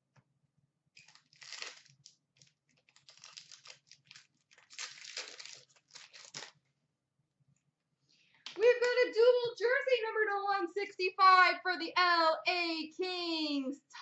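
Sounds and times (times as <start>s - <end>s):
card pack wrapper crinkling and tearing: 1.0s - 6.6s.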